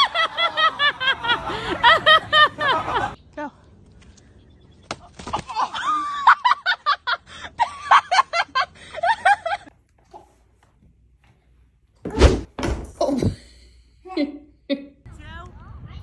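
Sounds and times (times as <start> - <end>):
hearty laughter: 0.0 - 3.2, 5.5 - 9.7.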